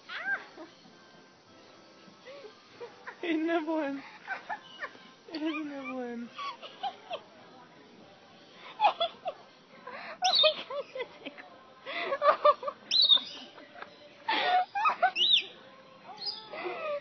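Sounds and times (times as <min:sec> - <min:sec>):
lorikeets chirping: 0:04.4 - 0:06.0, 0:10.2 - 0:11.0, 0:12.9 - 0:13.6, 0:14.6 - 0:16.6.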